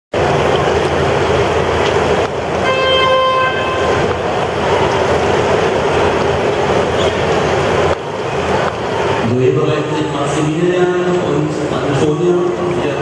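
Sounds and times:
loud steady rushing noise: 0:00.1 - 0:13.0
horn blast: 0:02.6 - 0:04.8.

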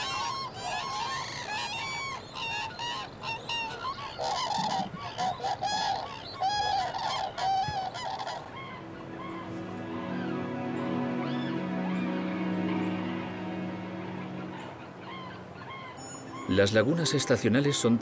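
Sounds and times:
flock of cranes calling: 0:00.0 - 0:17.9.

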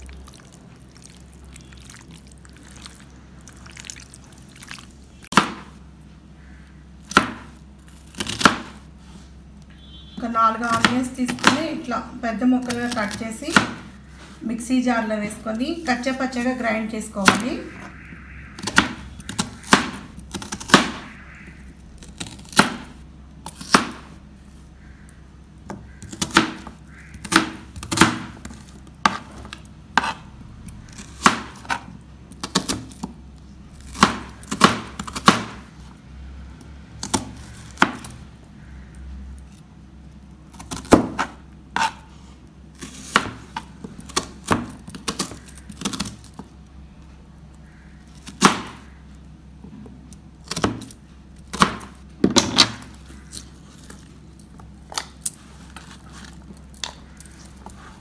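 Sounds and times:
knife chopping on cutting board: 0:07.1 - 0:07.5, 0:08.2 - 0:08.8, 0:18.6 - 0:21.0, 0:31.2 - 0:31.9, 0:40.6 - 0:42.0, 0:43.0 - 0:46.1.

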